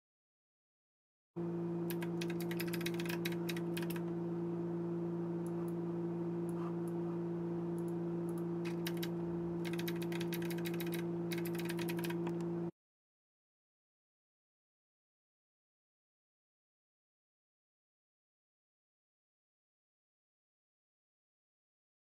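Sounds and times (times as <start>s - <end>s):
low electrical hum: 1.4s - 12.7s
keyboard key clicks: 1.9s - 4.0s, 8.7s - 12.4s.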